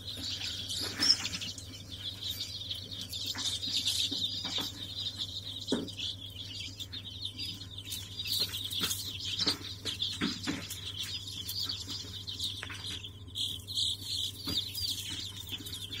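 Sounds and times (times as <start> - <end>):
chicks peeping: 0.0 - 16.0.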